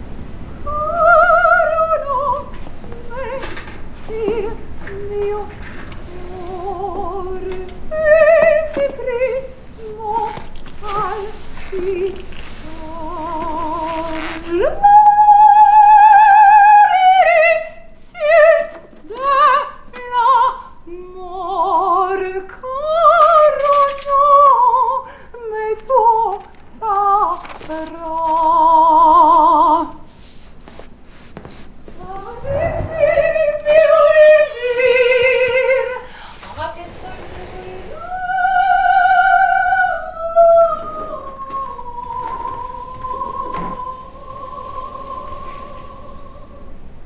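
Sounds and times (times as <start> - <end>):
soprano singing opera: 0.6 - 30.1, 32.0 - 47.0.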